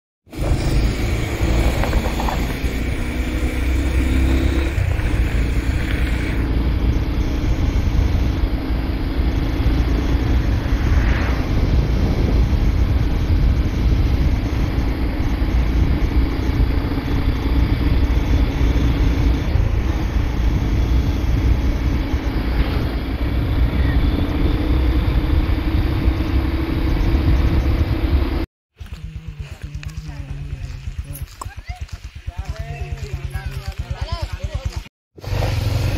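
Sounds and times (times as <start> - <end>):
wind buffeting microphone: 0.3 - 3.4, 4.0 - 28.4
vehicle engine humming: 0.3 - 35.9.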